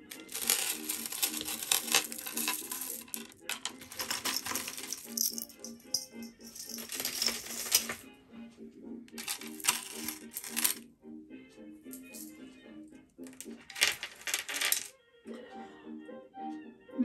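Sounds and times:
bead necklaces clattering: 0:00.0 - 0:08.0, 0:09.2 - 0:10.8, 0:11.9 - 0:12.4, 0:13.3 - 0:14.9
soft background music: 0:00.0 - 0:17.0.

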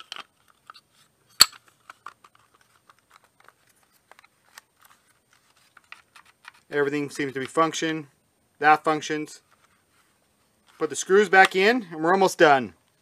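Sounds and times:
plastic clicks and rattles: 0:00.0 - 0:00.8, 0:01.4 - 0:05.0, 0:05.7 - 0:06.7.

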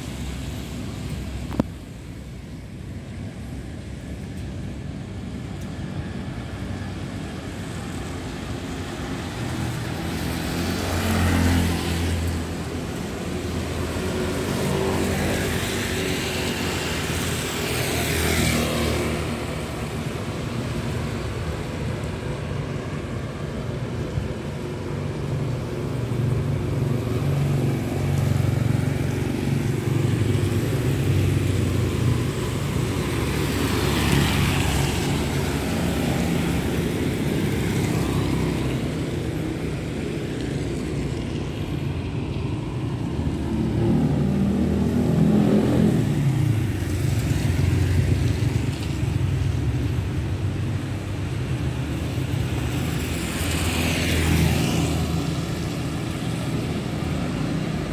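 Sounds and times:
low traffic rumble: 0:00.0 - 0:57.9
vehicles swishing on wet asphalt: 0:00.0 - 0:57.9
engine passing: 0:26.1 - 0:51.5.

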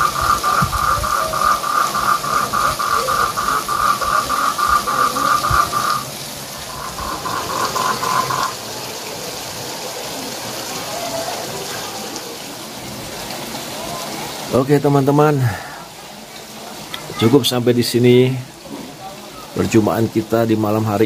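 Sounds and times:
frog calling: 0:00.0 - 0:08.6
steady hiss: 0:00.0 - 0:13.2.

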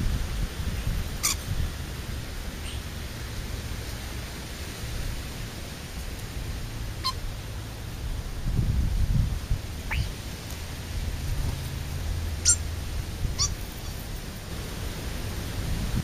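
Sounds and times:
wind on microphone: 0:00.0 - 0:03.8, 0:07.4 - 0:16.0
sharp high chirps: 0:09.9 - 0:10.1.

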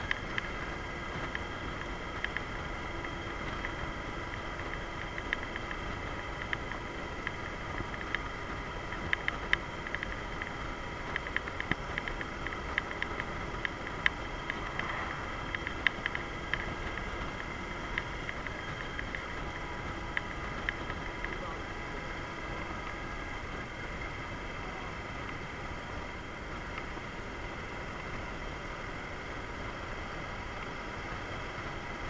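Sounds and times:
motorcycle engine running: 0:00.0 - 0:32.0
steady rushing noise: 0:00.0 - 0:32.0.

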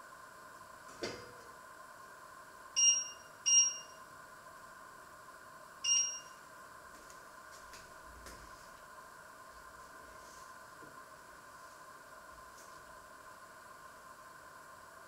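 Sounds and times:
faint steady hum: 0:00.0 - 0:15.0
appliance electronic beeps: 0:02.8 - 0:04.0, 0:05.8 - 0:06.4.

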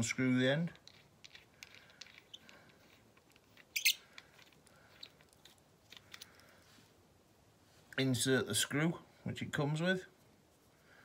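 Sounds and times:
metal threads clicking and scratching: 0:00.8 - 0:06.5.

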